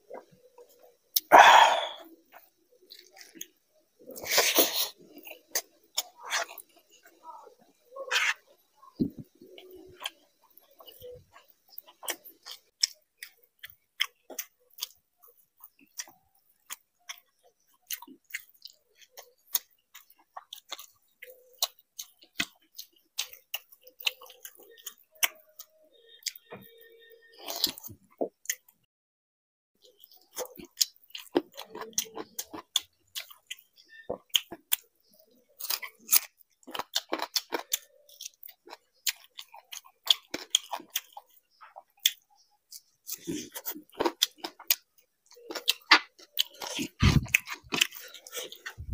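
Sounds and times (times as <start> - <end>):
wet chewing and lip-smacking: 8.1 - 26.7, 29.8 - 48.9.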